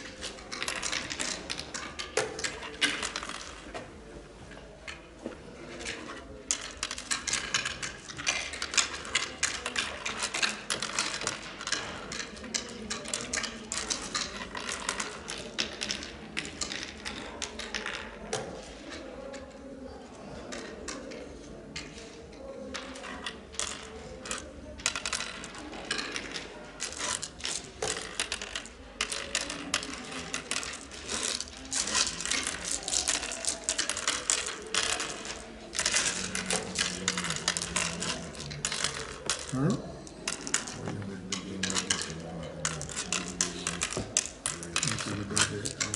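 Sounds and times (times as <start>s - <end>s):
seeds clicking on wooden board: 22.7s - 45.9s.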